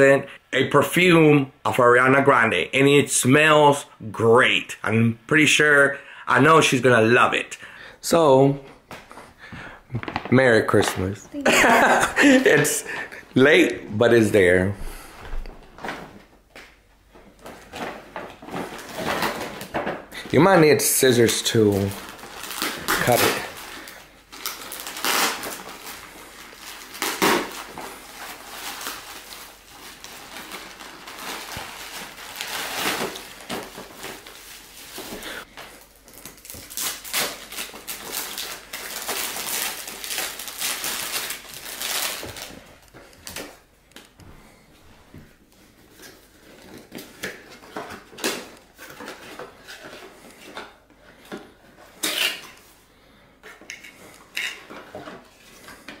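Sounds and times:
plastic bag and bubble wrap crinkling: 0:09.9 - 0:13.8, 0:17.3 - 0:44.2, 0:45.4 - 0:50.9.

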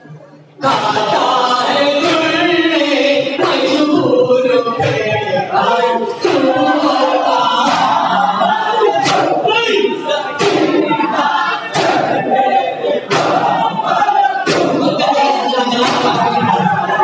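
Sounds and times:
crowd of mourners singing: 0:00.0 - 0:17.0
men singing a lament together: 0:00.6 - 0:17.0
hands beating chests: 0:07.5 - 0:08.3, 0:09.0 - 0:09.4, 0:10.4 - 0:11.1, 0:11.7 - 0:12.3, 0:13.0 - 0:16.7.

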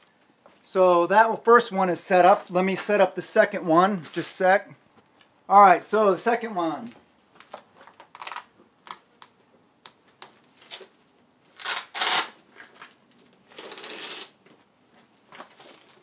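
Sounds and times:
velcro ripping: 0:08.1 - 0:09.0, 0:10.6 - 0:10.9, 0:11.5 - 0:12.4, 0:13.5 - 0:14.4.

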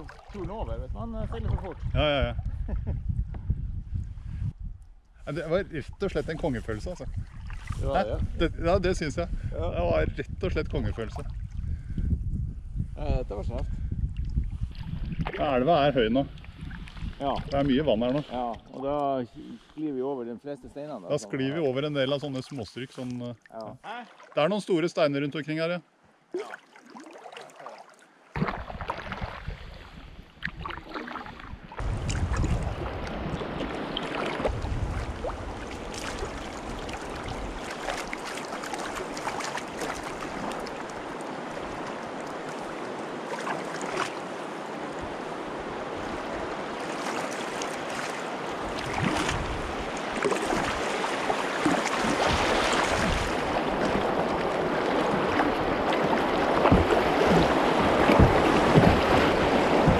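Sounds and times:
river water rushing and splashing: 0:30.5 - 0:59.9.

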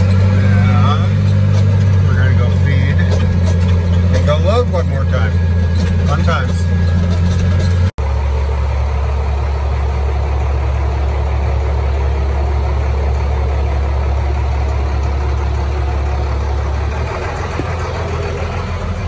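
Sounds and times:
vehicle engine droning: 0:00.0 - 0:19.0.

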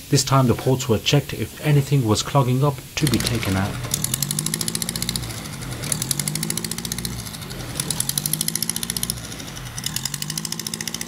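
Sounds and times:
car engine idling: 0:02.7 - 0:11.0
rapid ticking: 0:02.8 - 0:11.0.

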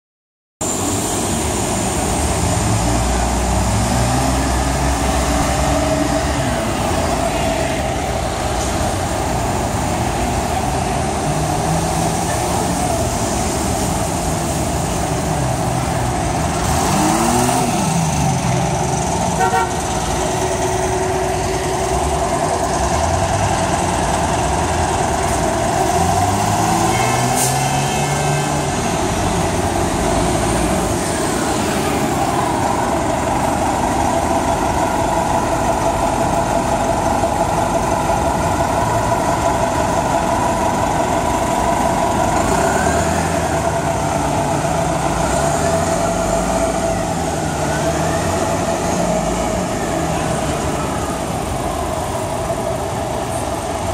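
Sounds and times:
bus diesel engines revving: 0:00.6 - 0:53.9
city traffic noise: 0:00.6 - 0:53.9
short horn toot: 0:19.4 - 0:19.8.

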